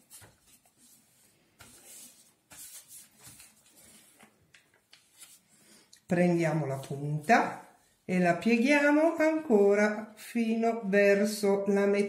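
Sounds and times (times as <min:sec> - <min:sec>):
paper rustling and creasing: 0:00.0 - 0:05.7.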